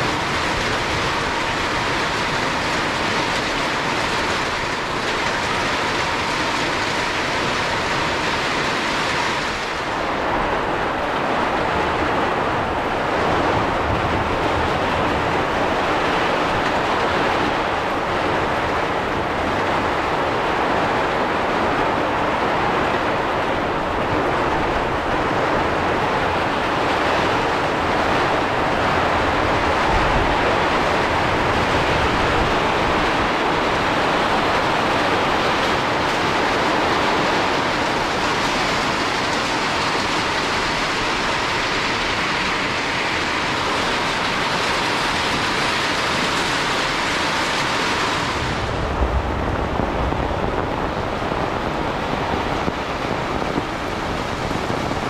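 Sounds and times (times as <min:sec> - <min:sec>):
heavy rain in wind: 0:00.0 - 0:55.0
low rumbling: 0:48.0 - 0:55.0.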